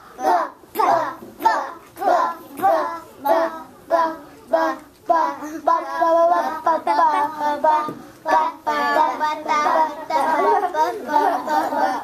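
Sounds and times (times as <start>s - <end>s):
children chanting: 0.0s - 12.0s.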